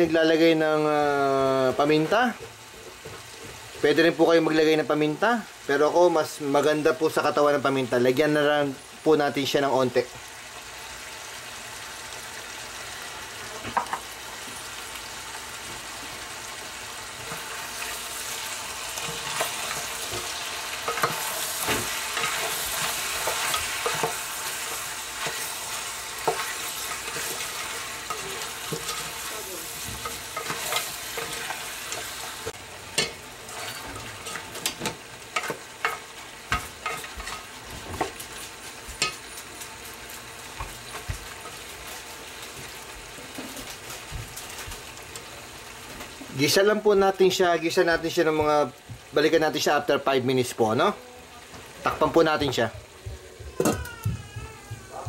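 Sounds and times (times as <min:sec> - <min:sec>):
meat sizzling in a pot: 0:00.0 - 0:55.0
spatula scraping and knocking pot: 0:19.0 - 0:32.2.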